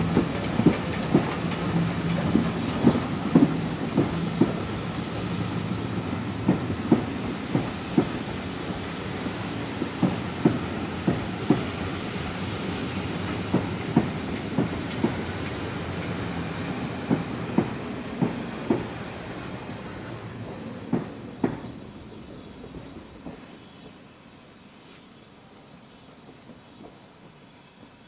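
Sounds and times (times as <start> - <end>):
train wheel clicks on rail joints: 0.0 - 4.6, 9.8 - 16.4
train rolling rumble: 0.0 - 24.7.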